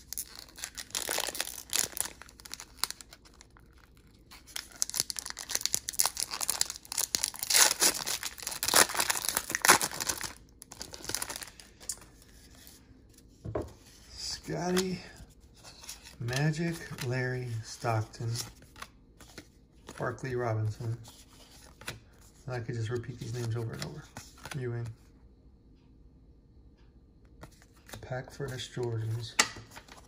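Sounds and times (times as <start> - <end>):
card pack wrappers tearing and crinkling: 0.0 - 12.0.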